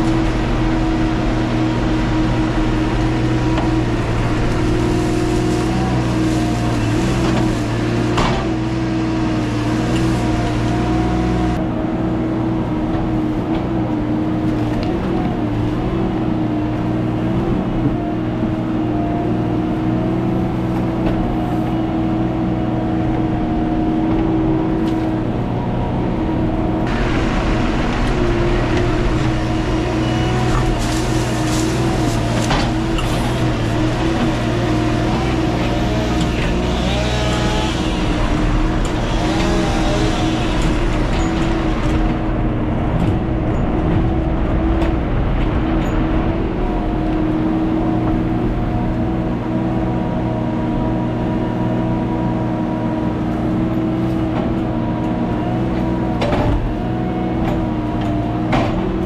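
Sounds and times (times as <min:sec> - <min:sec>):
chainsaw engine running: 0:26.9 - 0:41.4.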